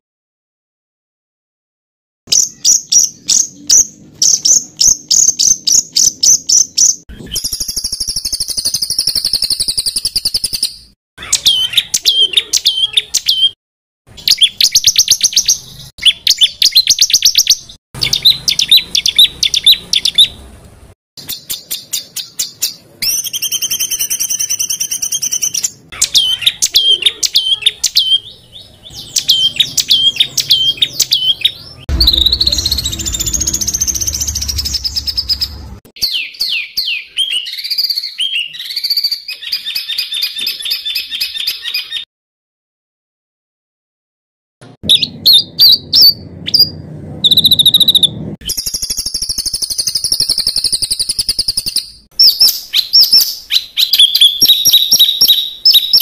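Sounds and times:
buzzy bird trill: 0:02.3 - 0:13.6, 0:14.2 - 0:20.4, 0:21.2 - 0:42.0, 0:44.8 - 0:56.0
hooked bird whistles: 0:02.3 - 0:13.6, 0:21.2 - 0:42.0, 0:47.3 - 0:56.0
songbird singing high notes: 0:02.3 - 0:13.6, 0:21.2 - 0:42.0.

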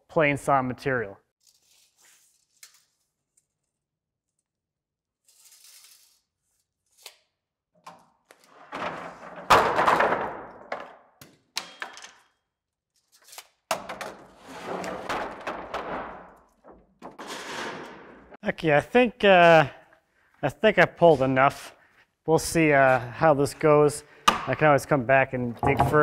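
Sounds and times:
wooden boards scraping: 0:14.2 - 0:18.4
wooden boards knocking: 0:25.6 - 0:26.0.

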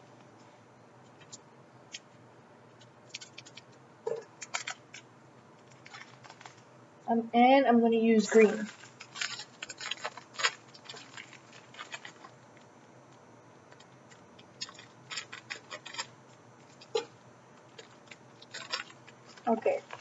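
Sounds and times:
plastic bag crinkling: 0:03.1 - 0:05.0, 0:05.6 - 0:06.7, 0:08.2 - 0:12.6, 0:13.7 - 0:20.0.

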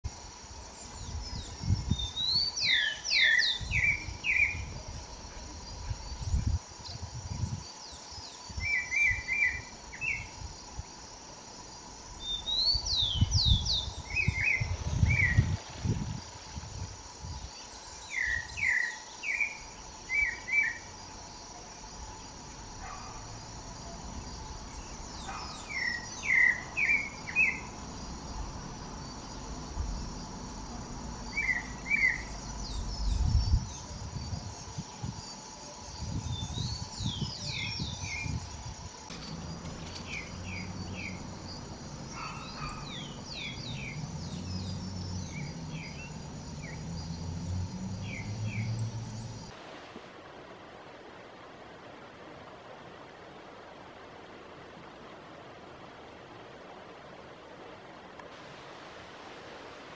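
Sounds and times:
high insect drone: 0:00.0 - 0:49.6
thrush singing whistled notes: 0:00.7 - 0:04.8, 0:06.0 - 0:10.4, 0:11.9 - 0:15.7, 0:17.3 - 0:29.5, 0:31.2 - 0:49.5
low rumbling: 0:39.0 - 0:49.5.

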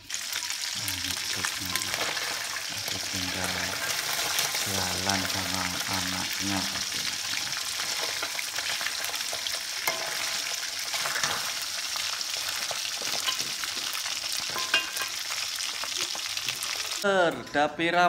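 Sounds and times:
deep-frying sizzle and crackle: 0:00.0 - 0:17.1.

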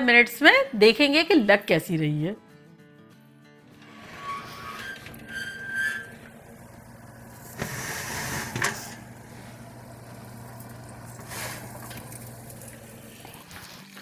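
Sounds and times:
steady low hum: 0:06.1 - 0:13.3.

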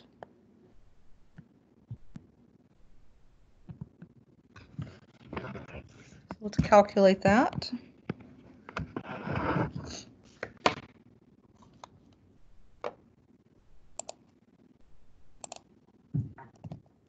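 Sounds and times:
mouse and keyboard clicks: 0:14.0 - 0:14.2, 0:15.4 - 0:15.7.

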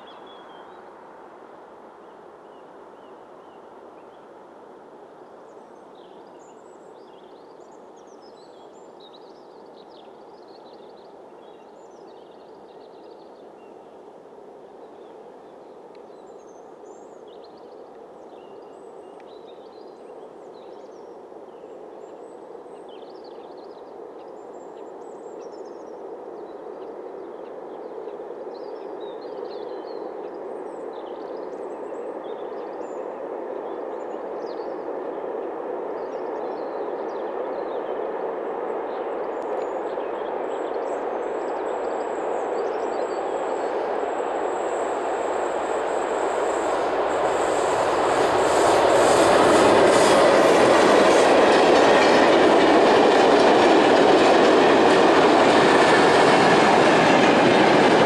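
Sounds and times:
high steady whine: 0:41.9 - 0:54.0
diesel locomotive engine: 0:43.2 - 0:58.0
train wheel noise: 0:43.7 - 0:58.0.

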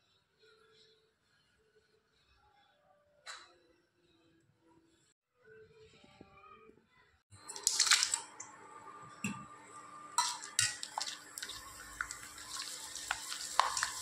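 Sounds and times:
chips sizzling in hot oil: 0:07.4 - 0:08.6, 0:09.9 - 0:14.0.

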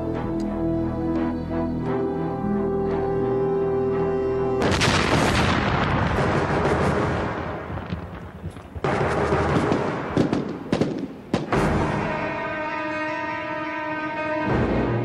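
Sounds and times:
falling debris rumbling: 0:04.6 - 0:10.2
land mine explosions: 0:04.6 - 0:12.3.

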